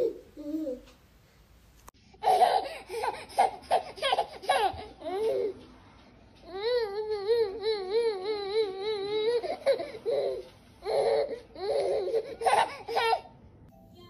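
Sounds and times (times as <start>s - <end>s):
baby laughing: 0.0s - 0.9s, 2.2s - 5.6s, 6.5s - 13.4s.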